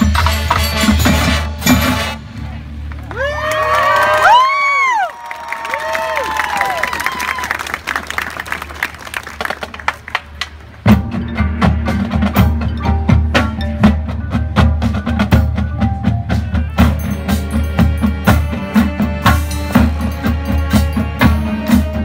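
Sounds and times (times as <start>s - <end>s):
mallet percussion notes: 0.0s - 2.2s, 10.8s - 22.0s
sharp percussion hits: 0.0s - 2.3s, 10.8s - 22.0s
marching band playing: 0.0s - 3.1s, 7.8s - 22.0s.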